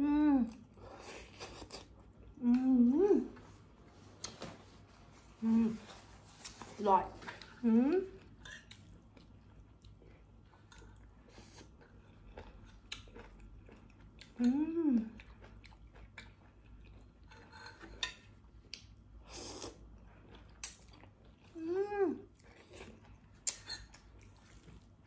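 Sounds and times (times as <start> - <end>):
person chewing with mouth clicks: 0.5 - 3.5, 7.3 - 21.6, 22.2 - 25.0
person humming: 7.6 - 8.1, 14.4 - 15.1.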